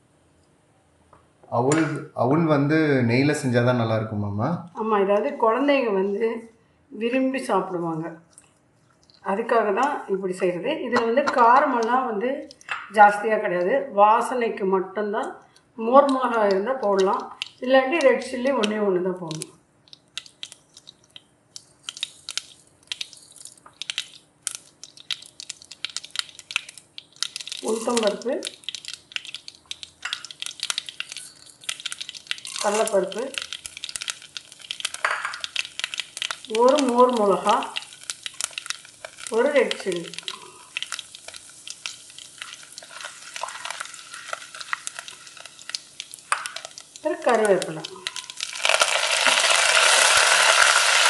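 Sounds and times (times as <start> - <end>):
seeds popping in hot oil: 9.1 - 13.8, 15.8 - 51.0
spatula stirring in a pan: 19.9 - 51.0.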